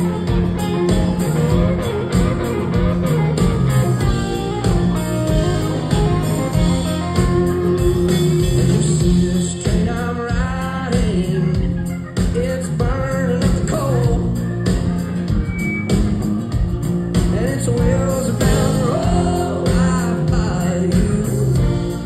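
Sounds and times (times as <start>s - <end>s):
live country rock band: 0.0s - 22.0s
man singing lead vocal: 8.1s - 14.4s, 17.2s - 22.0s.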